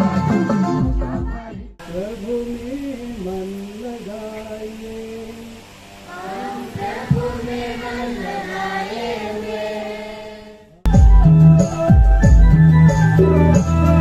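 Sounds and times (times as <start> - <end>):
voices singing a hymn: 0.0 - 10.8
electronic organ music: 10.9 - 14.0.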